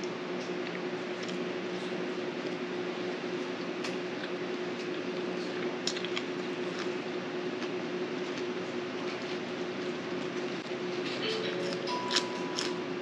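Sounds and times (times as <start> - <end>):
person chewing: 3.3 - 13.0.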